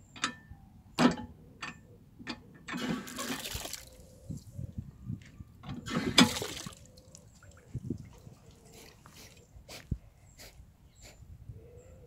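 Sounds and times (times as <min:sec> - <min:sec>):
water spurting onto drain grate: 0:02.8 - 0:04.0, 0:05.8 - 0:09.0.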